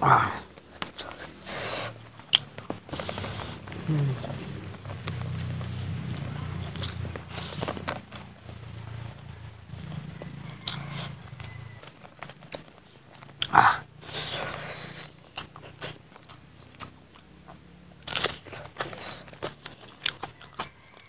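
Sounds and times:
chewing and lip smacks: 0.4 - 21.0
loud mouth sound: 1.3 - 4.8.

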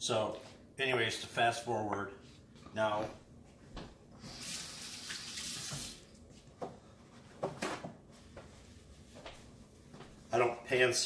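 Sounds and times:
faucet running into sink: 4.4 - 6.0.

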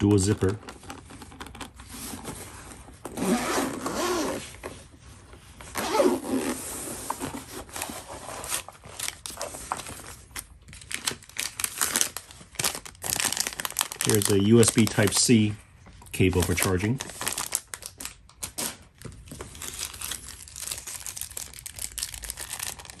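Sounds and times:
zipper being pulled open: 3.1 - 4.6, 5.7 - 7.4.

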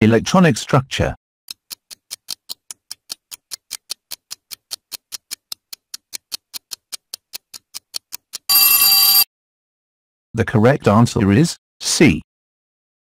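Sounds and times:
timer ticking: 1.5 - 9.2
loud bell ringing: 8.5 - 9.2.

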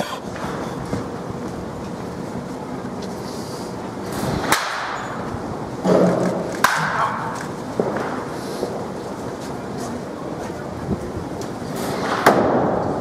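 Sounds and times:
steady background noise: 0.0 - 13.0
baseball bat hitting ball: 5.9 - 8.2.

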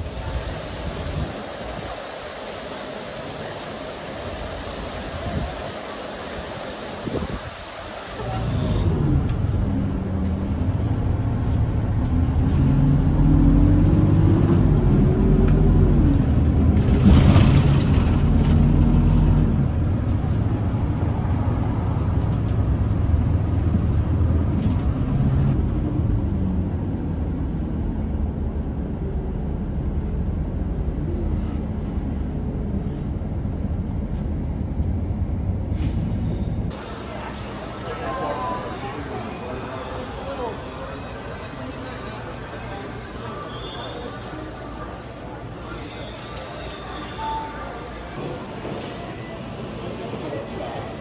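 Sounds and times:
bus engine: 0.0 - 51.0
road rumble: 0.0 - 51.0
brief hiss: 35.7 - 36.9.

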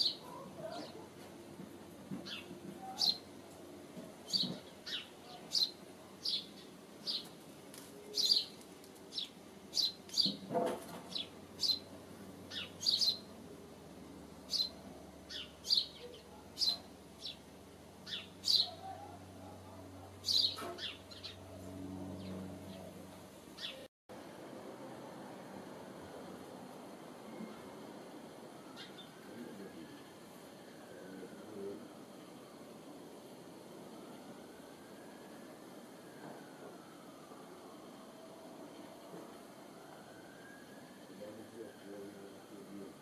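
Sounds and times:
sparrows chirping: 0.0 - 1.1, 2.2 - 3.4, 4.2 - 7.4, 8.0 - 13.4, 14.4 - 23.9, 28.7 - 29.2.

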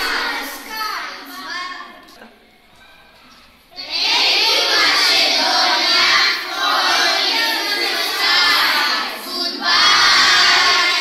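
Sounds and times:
children singing in unison: 0.0 - 0.8, 3.8 - 11.0.

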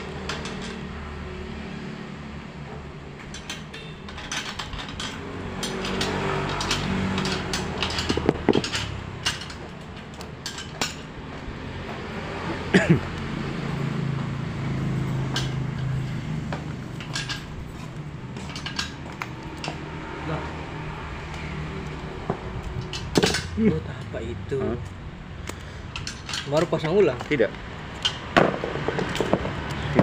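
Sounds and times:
small metal parts clicking and clinking: 0.1 - 1.0, 3.2 - 11.2, 15.1 - 20.0, 22.6 - 24.1, 25.3 - 30.0.

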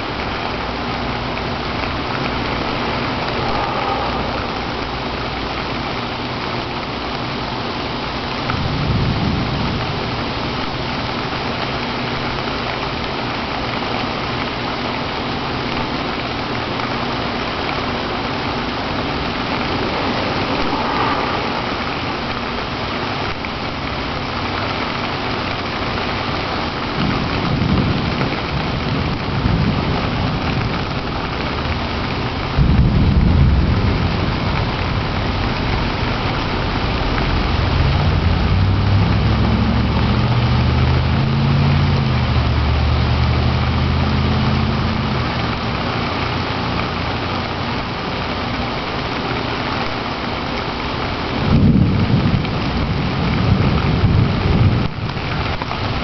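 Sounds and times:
steady rain falling: 0.0 - 56.0
low thunder rumbles: 1.5 - 6.9, 16.8 - 24.7, 26.8 - 42.9, 51.4 - 56.0.

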